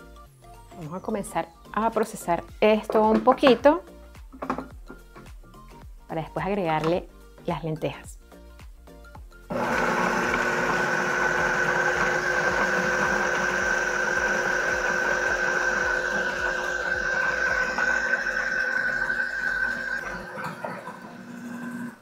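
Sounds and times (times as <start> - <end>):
food processor motor whining: 9.5 - 22.0.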